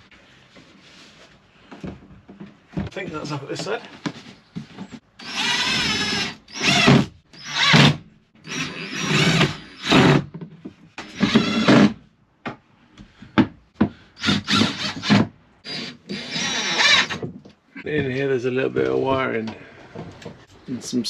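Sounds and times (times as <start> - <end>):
power drill bursts: 5.2 - 10.2, 14.2 - 17.2.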